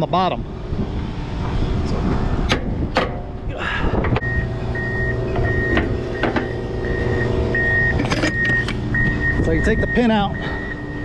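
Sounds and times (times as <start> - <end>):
backup alarm beeping: 4.2 - 11.0
truck engine idling: 4.2 - 11.0.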